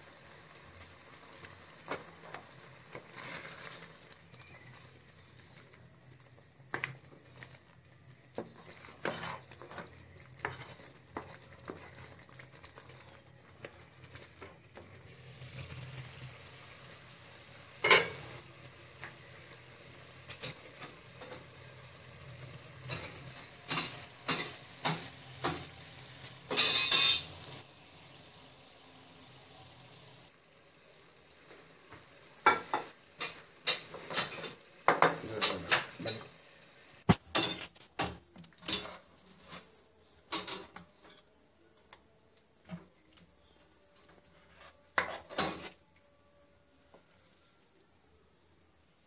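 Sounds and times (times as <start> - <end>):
faint sizzle: 0.0 - 49.0
spoon scraping and knocking pan: 1.8 - 15.7, 17.8 - 18.4, 22.5 - 27.6, 31.9 - 36.3, 37.1 - 42.0, 44.0 - 45.8.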